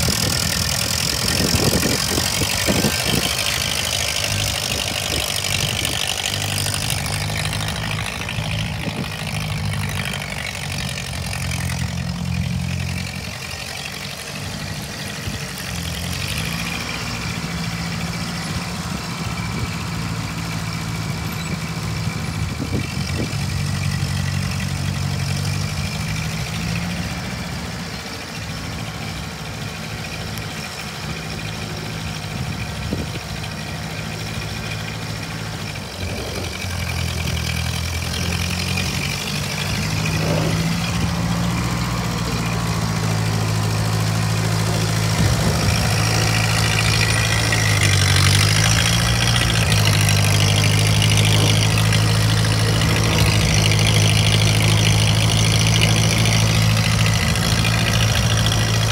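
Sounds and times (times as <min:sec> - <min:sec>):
tractor engine running: 0:00.0 - 0:58.9.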